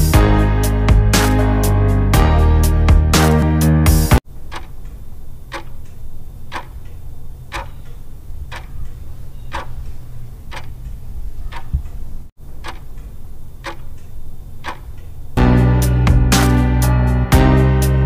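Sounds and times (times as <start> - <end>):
clock ticking: 4.3 - 15.4.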